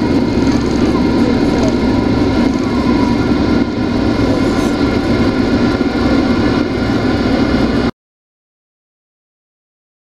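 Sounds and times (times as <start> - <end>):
steady hum tones: 0.0 - 7.9
jet engines roaring in cabin: 0.0 - 8.0.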